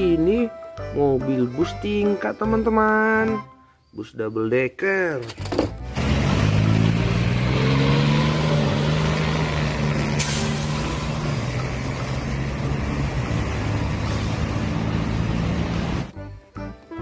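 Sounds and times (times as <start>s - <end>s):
bus engine droning: 5.7s - 16.3s.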